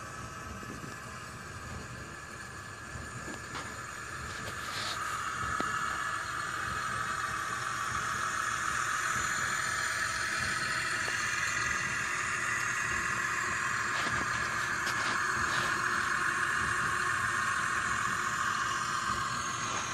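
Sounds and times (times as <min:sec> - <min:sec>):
tractor engine running: 0:00.6 - 0:19.9.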